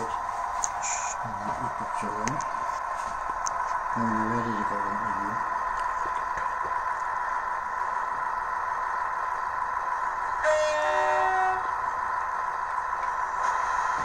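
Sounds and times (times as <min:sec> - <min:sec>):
electrical hum: 0:00.0 - 0:14.0
model train horn: 0:10.4 - 0:11.8.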